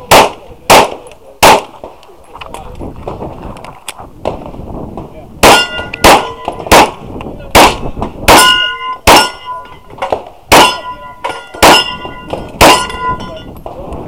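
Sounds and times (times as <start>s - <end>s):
pistol shots: 0.0s - 2.0s, 5.4s - 9.4s, 10.0s - 13.1s
steel target clanging: 5.4s - 6.9s, 7.6s - 13.6s.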